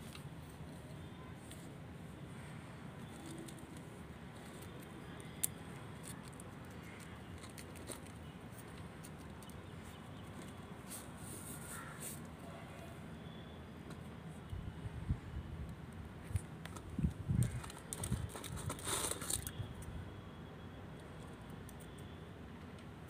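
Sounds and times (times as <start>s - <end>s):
light rustling of handling: 2.4s - 12.3s, 16.2s - 19.7s.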